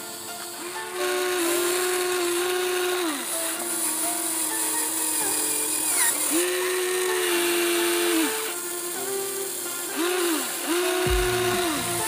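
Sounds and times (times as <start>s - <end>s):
electric motors whining: 0.0s - 12.0s.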